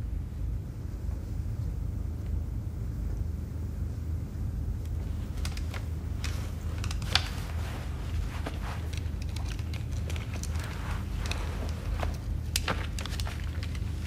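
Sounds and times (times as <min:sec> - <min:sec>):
low room tone rumble: 0:00.0 - 0:14.0
light clicks and rustles: 0:04.8 - 0:14.0.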